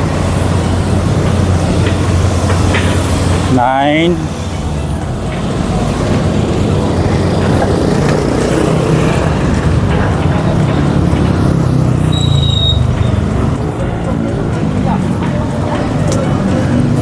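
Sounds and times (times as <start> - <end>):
road traffic rumble: 0.0 - 17.0
brief high squeak: 12.1 - 13.2.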